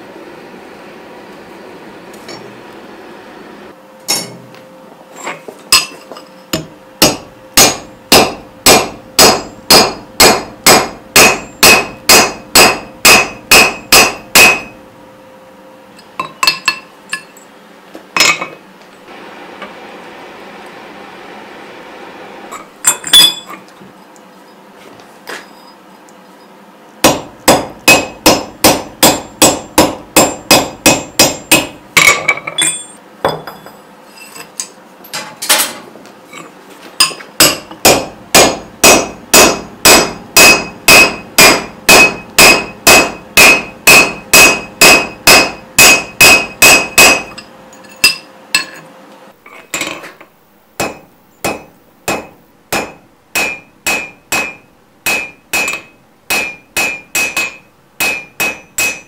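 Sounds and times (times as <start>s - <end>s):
hammer striking steel on anvil: 4.1s - 4.5s, 5.7s - 14.8s, 27.0s - 33.8s, 37.0s - 48.8s, 50.8s - 59.0s.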